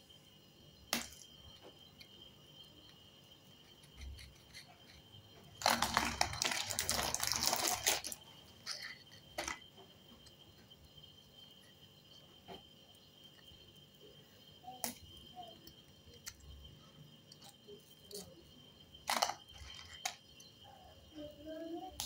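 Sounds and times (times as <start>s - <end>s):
plastic wrapper crinkling: 5.6s - 9.5s.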